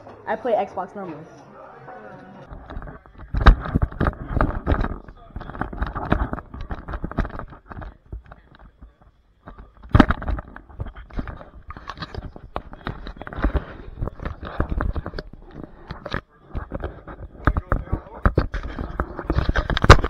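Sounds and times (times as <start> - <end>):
camera handling rubbing and rustling: 2.4 - 20.0.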